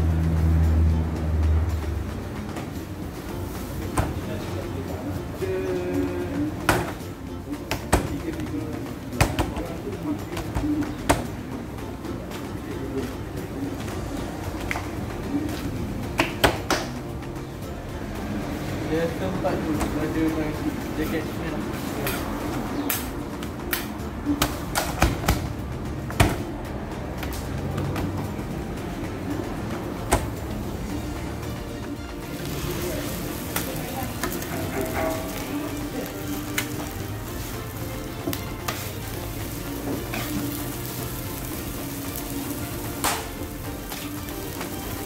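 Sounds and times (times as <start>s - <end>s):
knocks and clacks on steel griddle: 7.6s - 11.5s, 22.0s - 26.5s, 42.9s - 45.0s
metal spatula scraping griddle: 21.8s - 22.4s, 32.3s - 41.0s
food sizzling on a griddle: 32.3s - 45.0s.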